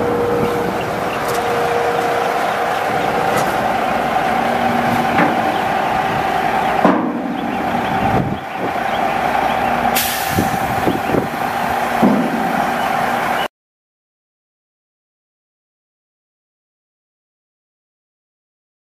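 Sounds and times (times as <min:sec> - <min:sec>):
diesel engine running: 0:00.0 - 0:13.5
engine knocks: 0:00.0 - 0:13.5
engine whine: 0:00.0 - 0:13.5
air hiss: 0:09.9 - 0:13.1.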